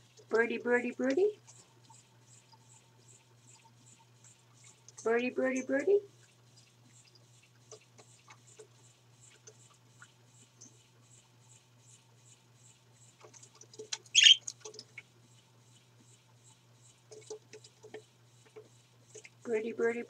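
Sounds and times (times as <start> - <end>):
budgerigars chirping: 14.2 - 14.4
loud sharp bird call: 14.2 - 14.4.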